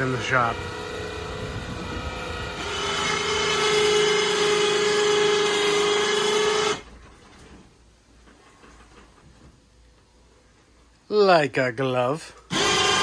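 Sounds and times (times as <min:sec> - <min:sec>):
electric winch motor whine: 0:00.0 - 0:07.0, 0:12.5 - 0:13.0.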